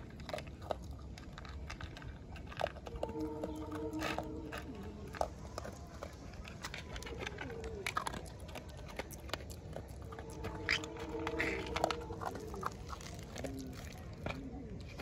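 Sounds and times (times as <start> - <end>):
dog chewing from plastic bowl: 0.0 - 15.0
faint low cooing call: 2.8 - 8.2, 9.9 - 15.0.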